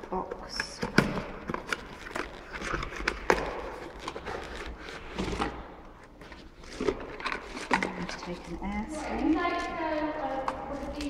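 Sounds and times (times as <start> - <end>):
cardboard rustling and scraping: 0.8 - 11.0.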